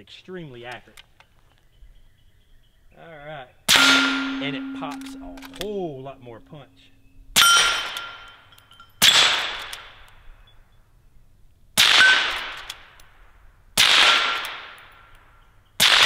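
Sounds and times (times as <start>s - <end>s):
suppressed rifle shots: 3.7s - 5.8s, 11.8s - 13.0s, 13.8s - 14.8s, 15.8s - 16.0s
steel target ringing: 3.7s - 9.6s.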